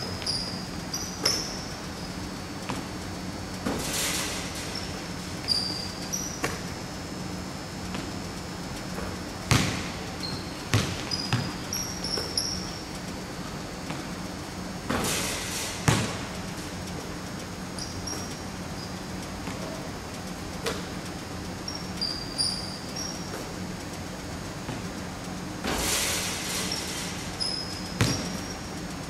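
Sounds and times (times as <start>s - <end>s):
sneaker squeaks: 0.0s - 2.9s, 3.6s - 6.7s, 8.9s - 14.1s, 17.7s - 19.9s, 21.6s - 23.6s, 25.6s - 28.8s
basketballs bouncing on wooden floor: 9.0s - 12.8s, 15.8s - 16.3s, 24.7s - 24.9s, 27.6s - 28.5s.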